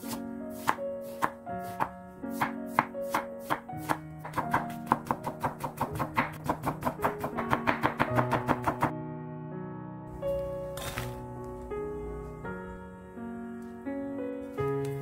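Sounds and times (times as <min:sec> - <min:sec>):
knife chopping on wooden board: 0:00.1 - 0:08.9.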